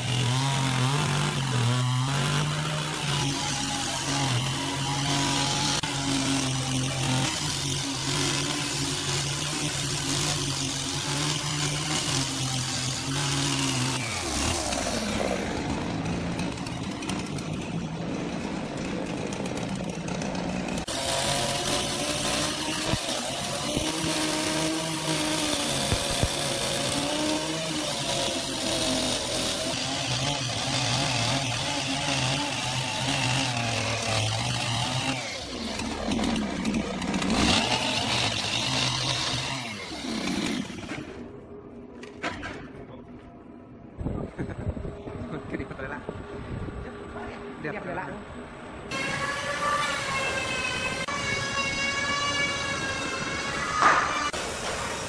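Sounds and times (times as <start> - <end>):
chainsaw cutting log: 0.0 - 41.3, 48.9 - 55.0.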